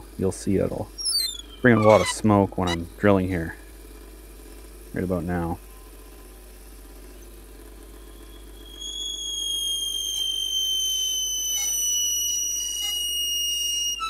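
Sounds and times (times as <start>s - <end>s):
high squeal of drill bit: 1.0s - 2.9s, 8.0s - 14.0s
lathe drilling wood: 8.2s - 14.0s.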